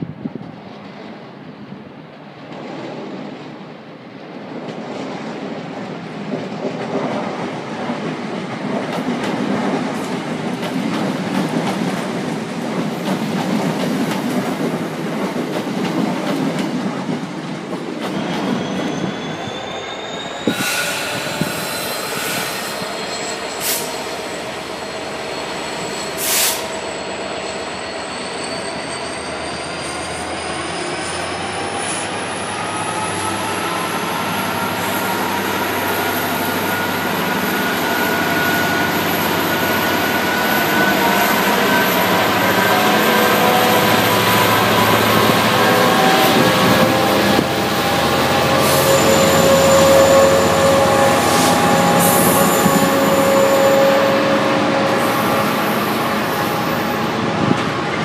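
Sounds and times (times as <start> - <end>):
train wheel and rail rumble: 0.0 - 58.0
sharp squeals: 18.1 - 57.3.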